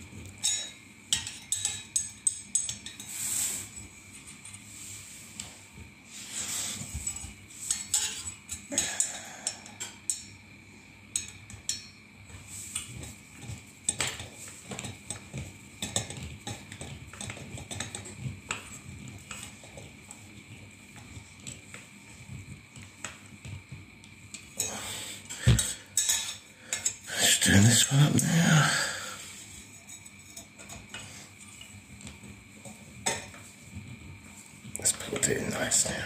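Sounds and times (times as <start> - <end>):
screwdriver clicking on metal fan: 0.4 - 3.1, 7.0 - 10.4, 12.7 - 18.7.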